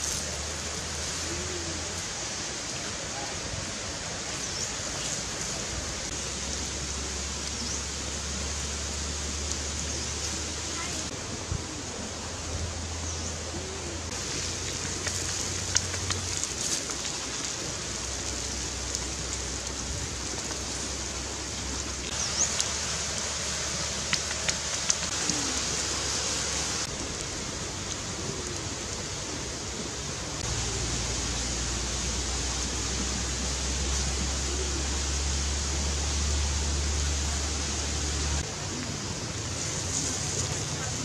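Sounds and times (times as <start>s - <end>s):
shrimp sizzling in oil: 14.1s - 29.0s.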